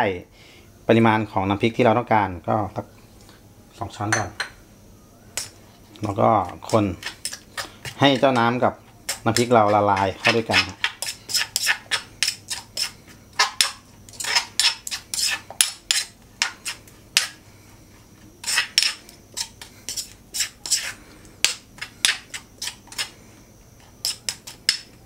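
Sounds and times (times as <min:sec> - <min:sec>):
spoon scraping stone mortar: 0:05.4 - 0:17.4, 0:18.2 - 0:23.2, 0:23.8 - 0:25.0.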